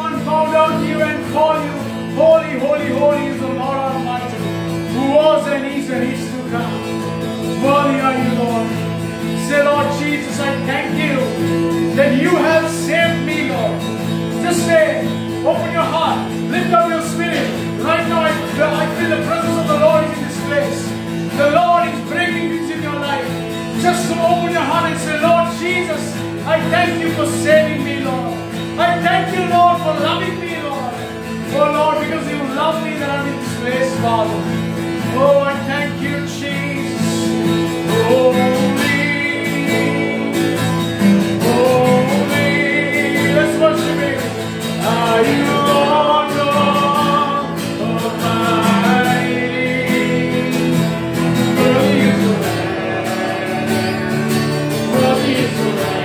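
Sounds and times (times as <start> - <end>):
guitar accompaniment: 0.0 - 56.0
person singing: 35.1 - 56.0.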